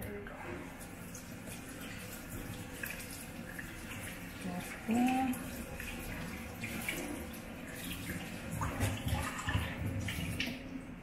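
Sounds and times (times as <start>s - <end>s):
tap water running into a sink: 0.0s - 10.9s.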